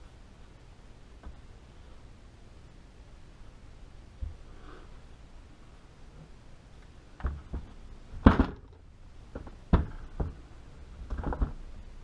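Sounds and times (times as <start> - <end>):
rifle knocks and thuds: 7.2 - 10.4.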